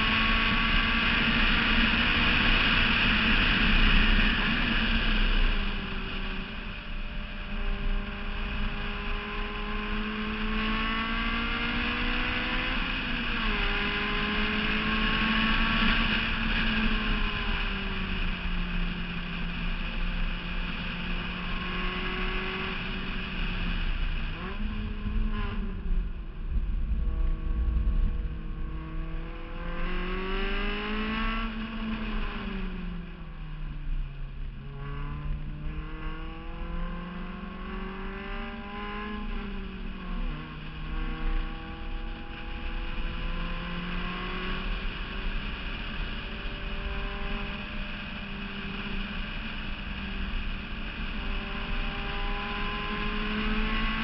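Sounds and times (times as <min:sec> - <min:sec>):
race car engine revving: 0:21.2 - 0:32.8.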